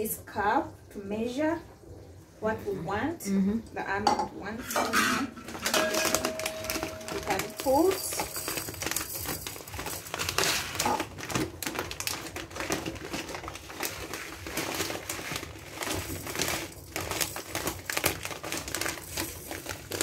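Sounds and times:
plastic packet crinkling: 5.4s - 20.0s
rice pouring into plastic cup: 5.8s - 20.0s.

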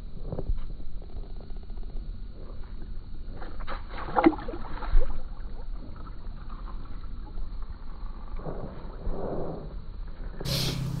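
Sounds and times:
fish splashing in water: 3.5s - 8.0s.

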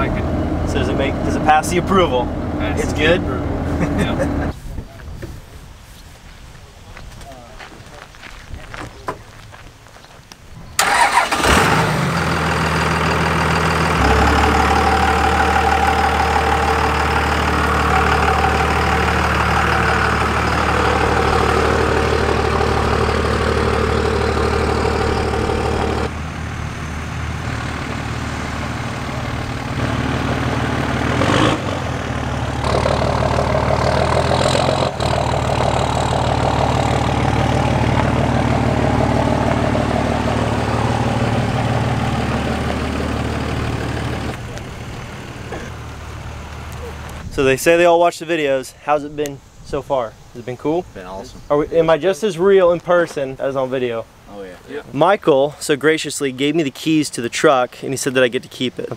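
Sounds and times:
diesel engine running: 0.0s - 4.5s, 10.8s - 47.3s.

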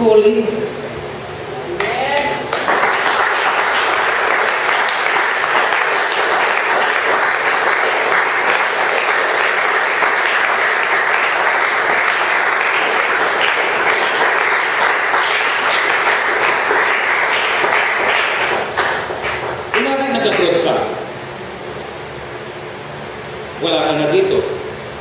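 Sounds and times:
congregation applauding: 1.8s - 21.0s.

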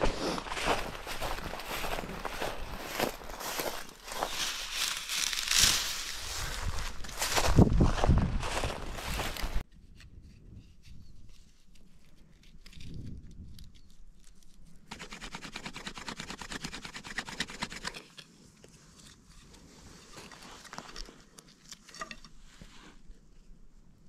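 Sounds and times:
stick scraping in dry soil: 0.0s - 23.7s.

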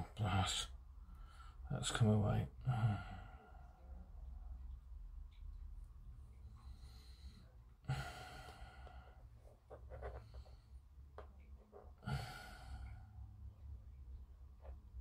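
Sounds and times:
low steady hum: 0.0s - 15.0s
person sighing heavily: 7.9s - 9.0s, 12.0s - 13.0s.

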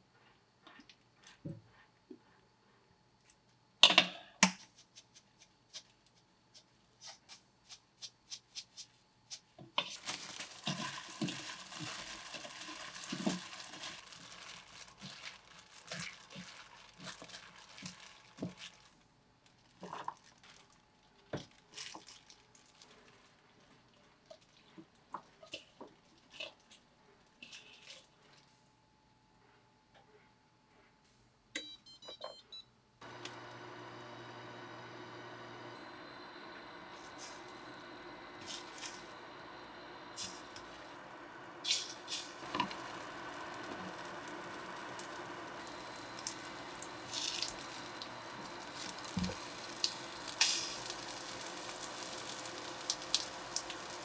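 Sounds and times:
gloved hand crinkling plastic: 9.8s - 25.1s, 41.6s - 54.0s.

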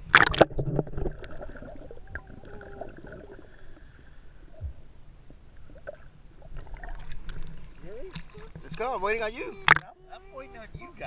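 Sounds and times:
bubbles gurgling underwater: 0.0s - 3.4s.

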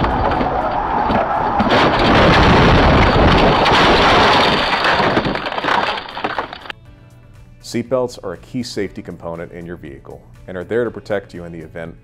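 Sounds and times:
car crashing: 0.0s - 6.8s.

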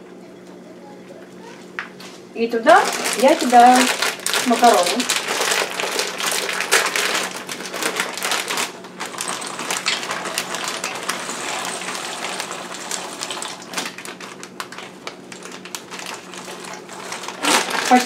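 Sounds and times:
plastic bag crinkling: 2.6s - 18.0s
dry pasta clattering into pot: 2.8s - 18.0s
boiling water hissing: 9.8s - 14.6s.

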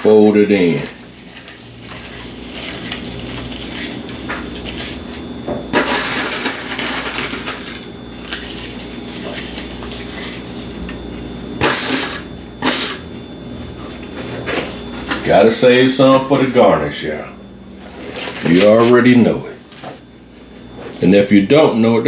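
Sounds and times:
crackly rustling of crumbling bacon: 0.0s - 11.6s, 17.8s - 19.0s.

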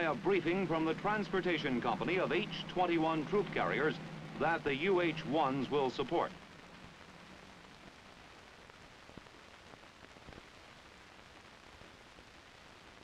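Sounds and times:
film soundtrack hiss: 0.0s - 13.0s.

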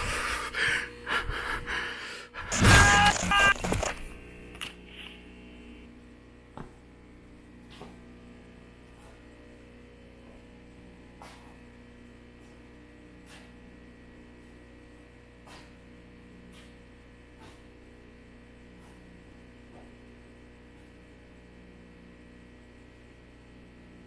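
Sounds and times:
low electrical hum: 0.0s - 24.0s
loud cry: 2.5s - 3.6s.

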